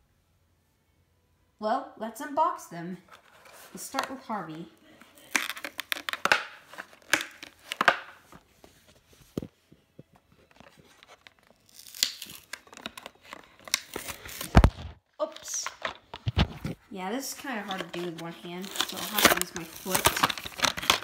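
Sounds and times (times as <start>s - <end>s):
blister packaging tearing and crinkling: 4.9s - 8.1s, 10.4s - 16.7s, 17.6s - 21.0s.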